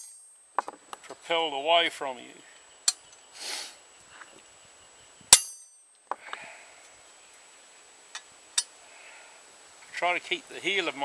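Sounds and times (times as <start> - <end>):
hammer striking chisel on steel: 5.3 - 5.8.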